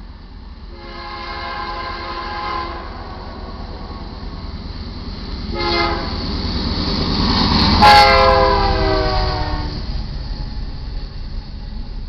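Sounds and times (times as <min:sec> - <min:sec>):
locomotive air horn blasts: 0:00.7 - 0:03.1, 0:05.5 - 0:06.2, 0:07.8 - 0:09.7
engine and wheel rumble: 0:02.8 - 0:12.0.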